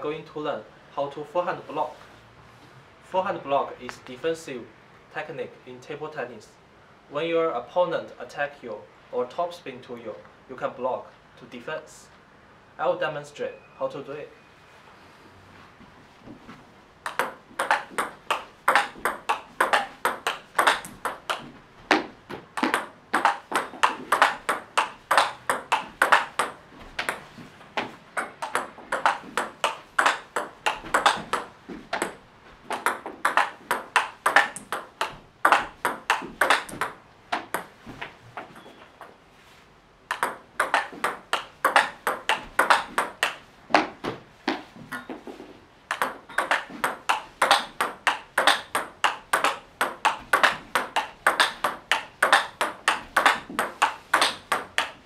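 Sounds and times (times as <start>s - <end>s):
table tennis ball clicks: 17.0s - 27.2s, 28.2s - 37.7s, 40.1s - 43.4s, 45.9s - 55.0s.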